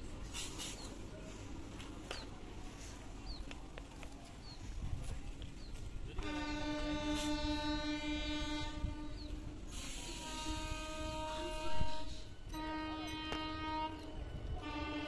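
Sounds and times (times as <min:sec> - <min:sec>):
train horn blast: 0:06.2 - 0:15.0.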